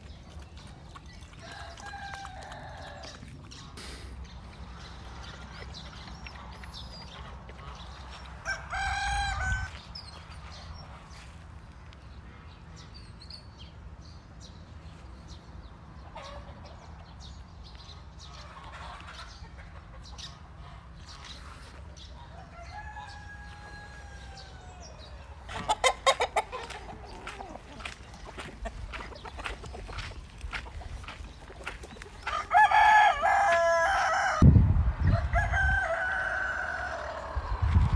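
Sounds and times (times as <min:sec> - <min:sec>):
rooster crowing: 0:08.4 - 0:09.8, 0:22.3 - 0:25.2, 0:32.2 - 0:34.4, 0:35.1 - 0:37.8.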